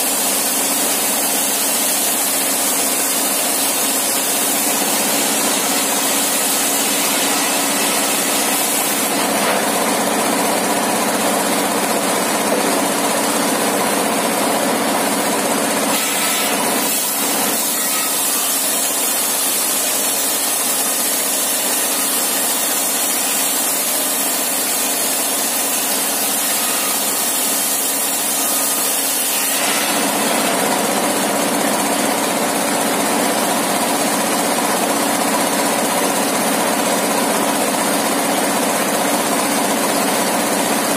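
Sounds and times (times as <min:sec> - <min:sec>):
saw blade ripping timber: 0:00.1 - 0:10.2, 0:15.9 - 0:31.2.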